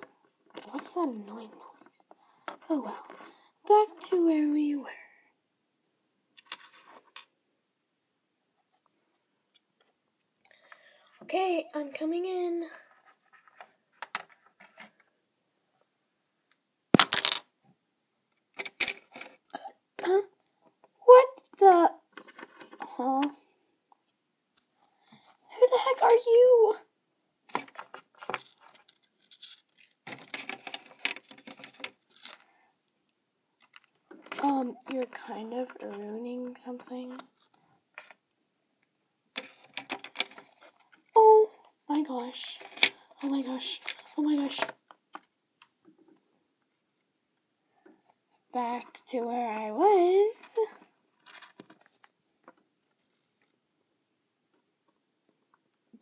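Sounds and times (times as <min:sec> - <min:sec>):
plastic toy figures handled: 0:00.0 - 0:04.2, 0:06.4 - 0:07.4, 0:12.7 - 0:15.2, 0:16.5 - 0:17.5, 0:18.4 - 0:21.0, 0:22.1 - 0:23.4, 0:27.5 - 0:32.6, 0:33.6 - 0:38.3, 0:39.3 - 0:47.2, 0:50.2 - 0:53.6.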